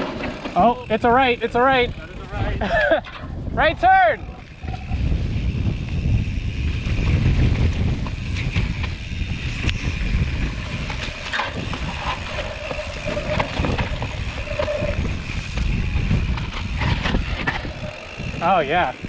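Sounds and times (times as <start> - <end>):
bike knocks and rattles: 0.0 - 3.6, 4.3 - 19.0
bike rolling on dirt: 0.0 - 19.0
wind on microphone: 1.6 - 19.0.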